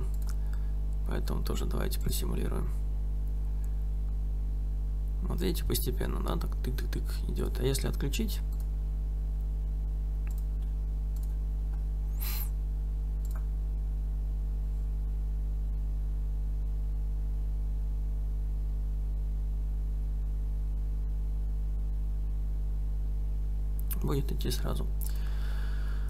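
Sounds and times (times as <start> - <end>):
electrical mains hum: 0.0 - 26.0
mouse clicks: 10.3 - 10.5.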